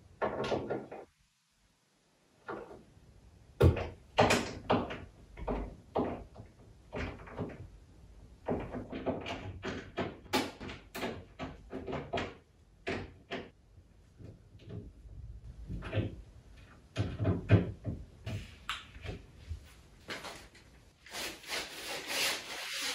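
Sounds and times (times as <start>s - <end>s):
knocks and clacks of wardrobe panels: 0.1s - 1.2s, 3.6s - 20.5s.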